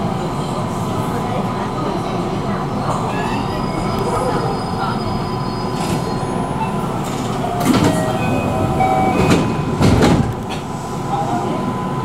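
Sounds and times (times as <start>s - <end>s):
electric train rumbling: 0.0s - 12.0s
heavy knocks from wheels: 9.2s - 10.7s.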